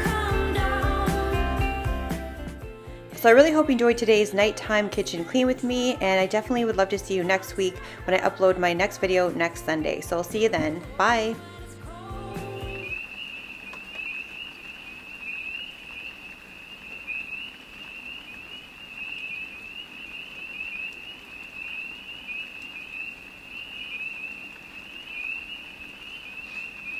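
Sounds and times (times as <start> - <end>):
night chorus of chirping animals: 12.4 - 26.9.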